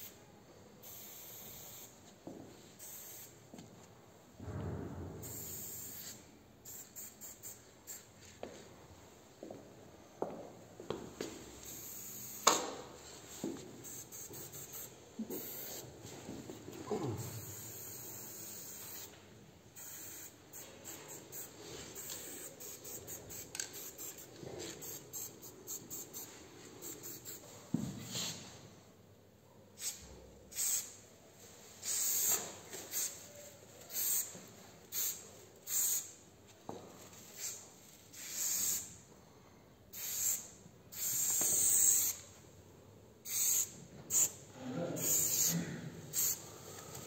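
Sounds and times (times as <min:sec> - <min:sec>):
spray paint can hissing: 0:00.8 - 0:02.0, 0:02.8 - 0:03.4, 0:05.2 - 0:08.1, 0:11.6 - 0:13.0, 0:13.8 - 0:15.9, 0:17.2 - 0:19.2, 0:19.8 - 0:27.5, 0:29.8 - 0:31.0, 0:31.8 - 0:33.2, 0:33.9 - 0:34.3, 0:34.9 - 0:36.2, 0:37.2 - 0:38.9, 0:39.9 - 0:42.2, 0:43.2 - 0:44.4, 0:45.0 - 0:45.5, 0:46.1 - 0:46.4.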